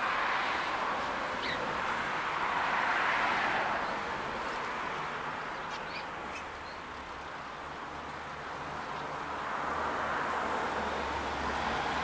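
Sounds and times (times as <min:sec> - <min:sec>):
finches chirping: 0:01.4 - 0:01.7, 0:05.5 - 0:06.8.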